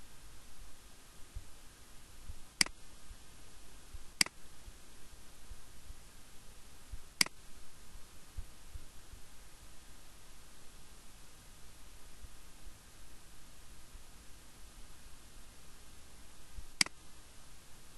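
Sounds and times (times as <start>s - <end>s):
faint hiss: 0.0s - 17.9s
computer mouse clicks: 16.8s - 17.0s.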